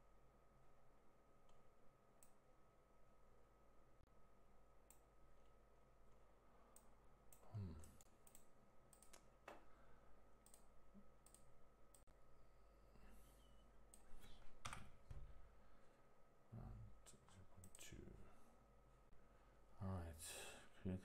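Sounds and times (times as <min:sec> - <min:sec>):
computer mouse and keyboard clicks: 0:06.7 - 0:09.7.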